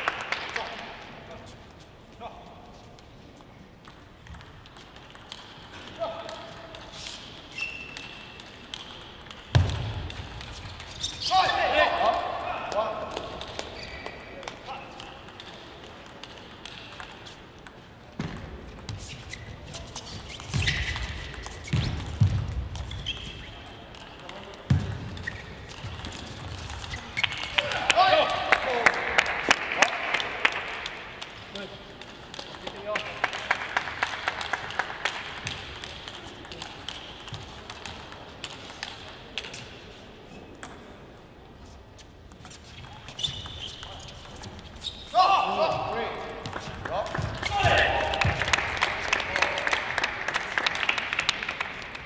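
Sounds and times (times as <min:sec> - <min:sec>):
people clapping: 0:00.0 - 0:00.9, 0:27.2 - 0:31.6, 0:32.5 - 0:35.8, 0:46.5 - 0:52.0
ping pong ball clicks: 0:03.8 - 0:10.5, 0:14.4 - 0:18.9.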